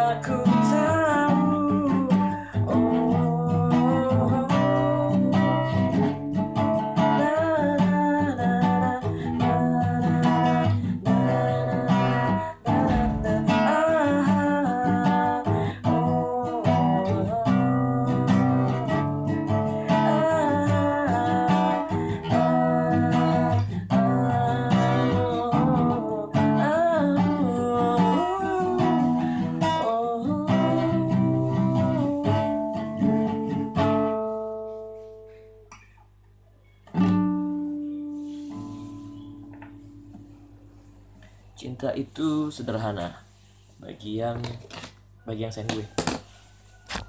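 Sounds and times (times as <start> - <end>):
song with acoustic guitar and singing: 0.0 - 44.4
strummed guitar chord: 11.2 - 14.6.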